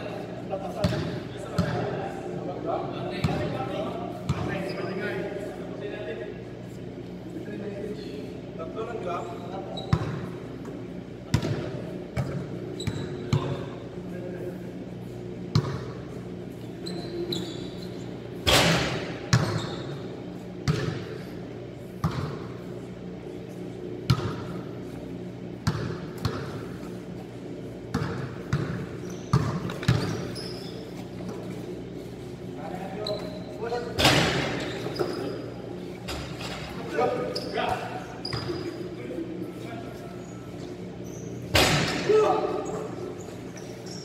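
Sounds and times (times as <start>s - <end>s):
steady low hum: 0.0s - 44.0s
basketballs bouncing on court: 0.7s - 1.9s, 3.1s - 3.6s, 4.2s - 4.7s, 9.8s - 13.7s, 15.5s - 16.2s, 18.4s - 20.0s, 20.6s - 21.3s, 22.0s - 22.6s, 24.0s - 24.7s, 25.6s - 26.9s, 27.8s - 30.4s.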